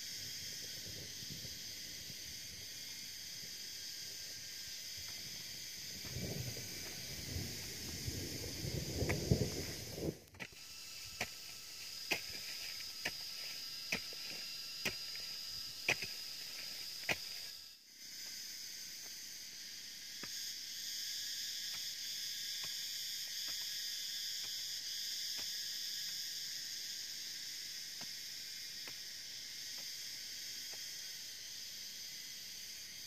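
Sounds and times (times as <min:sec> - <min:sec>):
high-pitched insect chorus: 0:00.0 - 0:33.0
hoe chopping into soil: 0:10.3 - 0:17.5.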